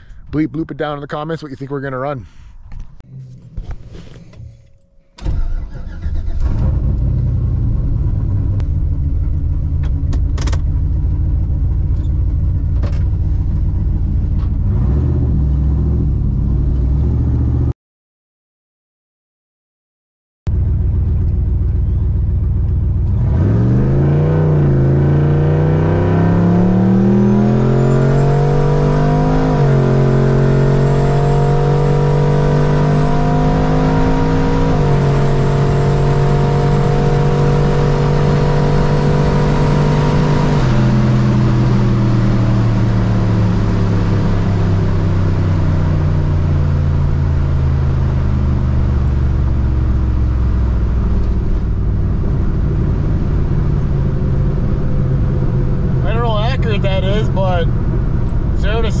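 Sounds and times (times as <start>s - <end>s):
car engine at full throttle: 2.2s - 17.7s, 20.5s - 59.0s.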